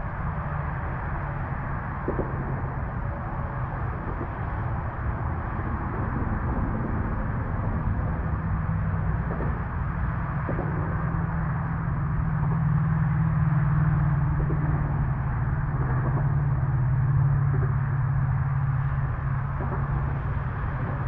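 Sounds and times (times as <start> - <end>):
distant vehicle engine drone: 0.0 - 21.0.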